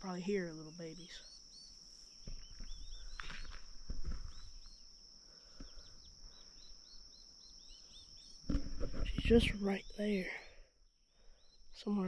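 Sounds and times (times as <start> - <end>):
high insect drone: 0.0 - 12.0
turkey poults peeping: 0.9 - 9.0.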